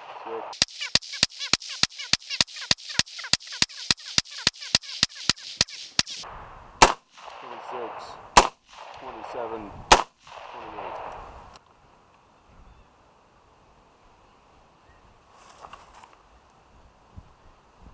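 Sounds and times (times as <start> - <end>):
hissing noise: 0.0 - 6.4
suppressed rifle shots: 6.8 - 11.3.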